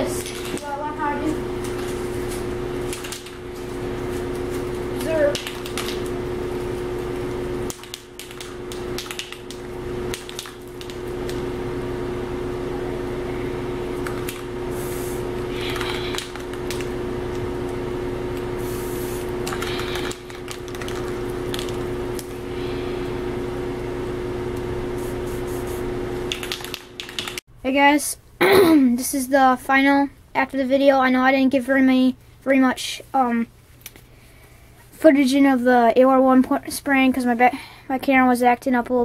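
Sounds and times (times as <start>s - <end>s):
steady low hum: 0.0s - 39.0s
spray paint can hissing: 14.7s - 15.2s, 18.6s - 20.4s.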